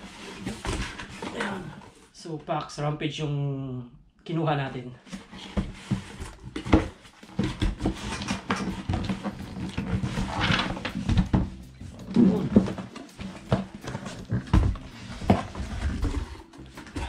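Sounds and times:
cardboard scraping rustle: 0.0 - 2.2, 5.0 - 17.0
cardboard boxes knocking: 5.4 - 17.0.

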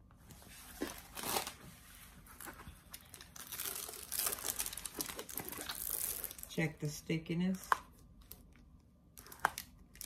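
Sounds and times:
plastic film crinkling: 2.4 - 6.6.

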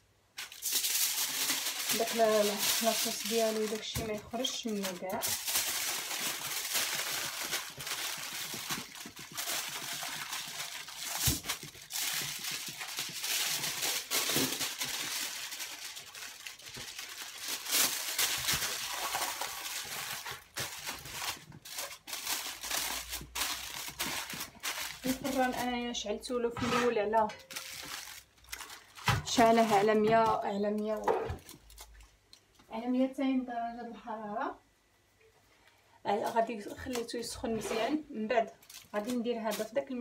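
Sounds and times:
aluminium foil crinkling: 0.3 - 26.3, 27.1 - 32.6, 36.3 - 40.0.

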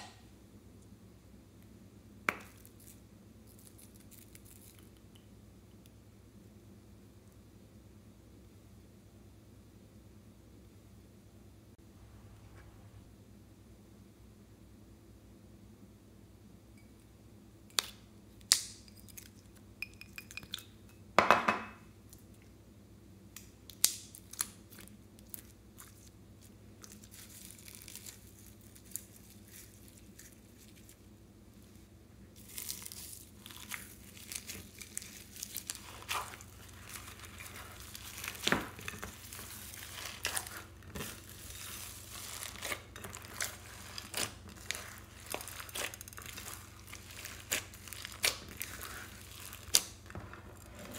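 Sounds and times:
slime crackling and popping: 32.4 - 50.2.

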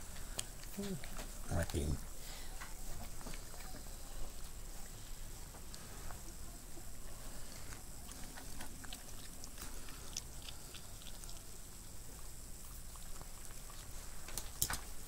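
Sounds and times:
dog licking and chewing: 2.6 - 15.0.

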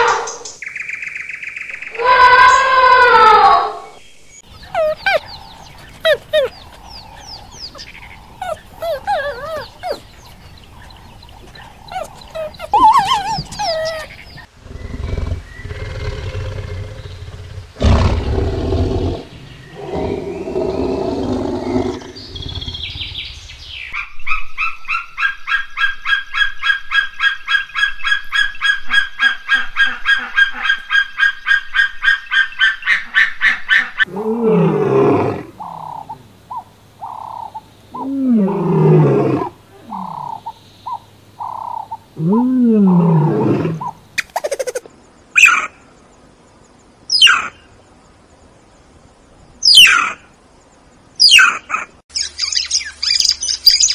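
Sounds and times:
gliding chirping animal calls: 1.7 - 17.6, 43.0 - 45.8, 49.6 - 50.2
low rough animal calls: 1.8 - 23.2.

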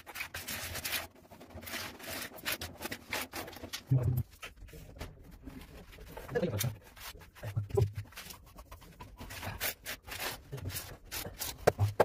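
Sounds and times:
grout float scraping tiles: 5.6 - 12.0.

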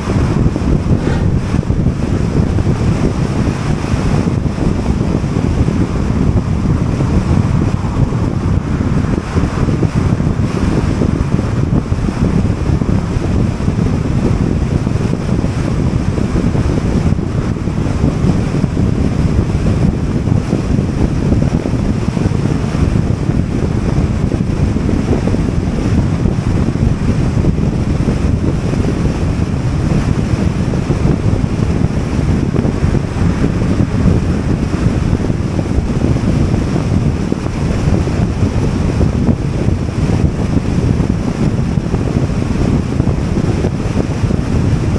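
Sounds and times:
wind and road noise: 0.0 - 44.9
wind buffeting microphone: 0.0 - 44.9.

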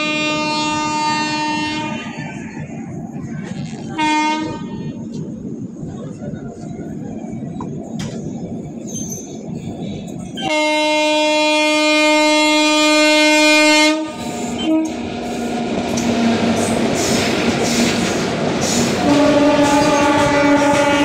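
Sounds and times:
train horn blowing: 0.0 - 2.4, 3.9 - 5.1, 10.4 - 15.1, 19.0 - 21.0
passing train rush and clatter: 0.0 - 21.0
train running rumble: 0.0 - 21.0.

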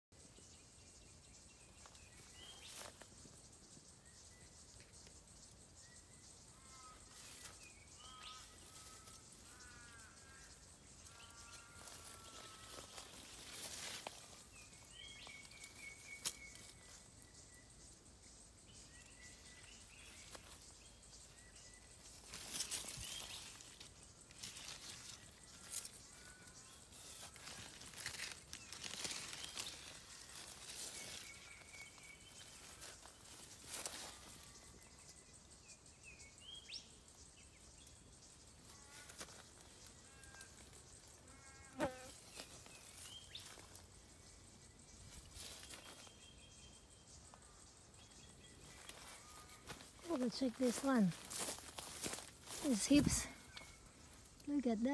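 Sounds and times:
small birds chirping: 0.1 - 54.9
leaves rustling on microphone: 11.1 - 17.0, 22.0 - 34.7, 45.0 - 46.3, 48.6 - 54.9.

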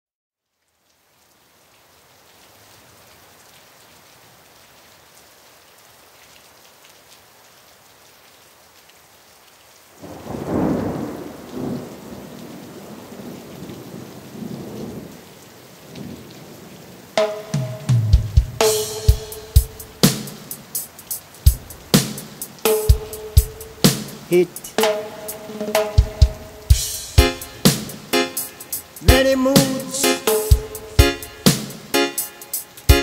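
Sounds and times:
rain hissing: 0.7 - 33.0
thunder rumbling: 10.0 - 15.2, 22.9 - 31.5.

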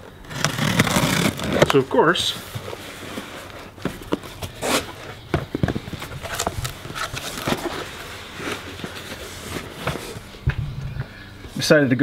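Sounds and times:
cardboard box being opened: 0.2 - 5.2, 5.9 - 10.3.

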